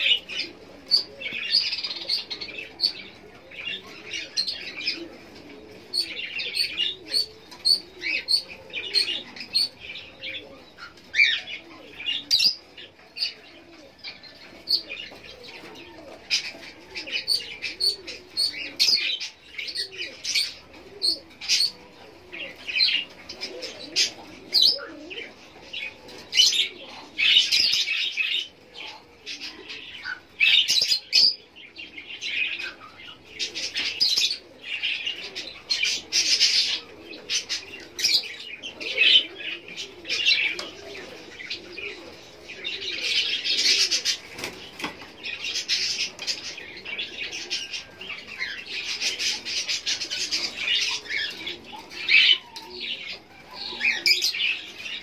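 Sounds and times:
lovebirds chirping: 0.0 - 55.0.

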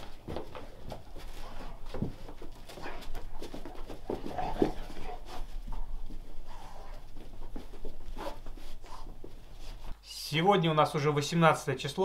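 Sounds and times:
dogs scuffling clicks and taps: 0.0 - 9.5.

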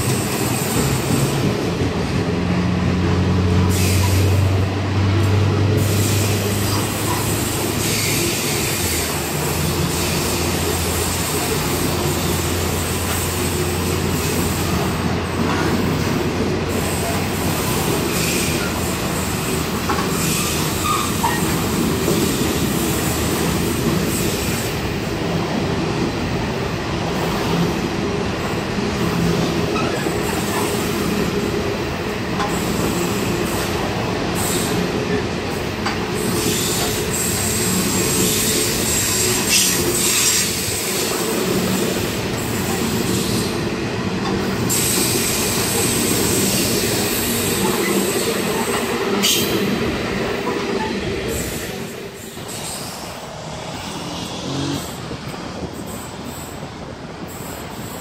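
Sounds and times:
freight train wheels rumbling: 0.0 - 58.0
high wheel squeal: 18.1 - 21.6.

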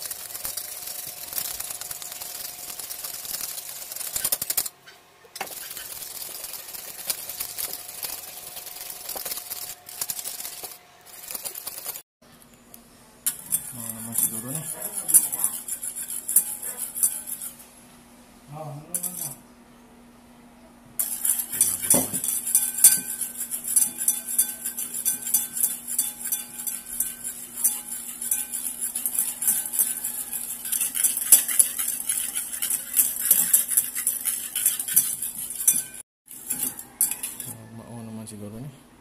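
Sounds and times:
whisk clicking against ceramic bowl: 13.3 - 17.6, 21.0 - 37.6.

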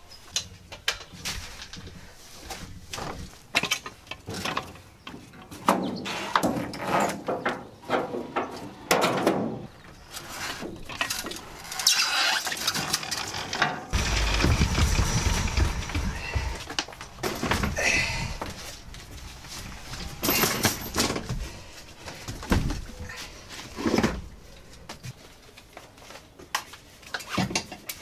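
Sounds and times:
clicks knocks and scraping of gear: 10.1 - 28.0
low rumble: 14.0 - 18.5.

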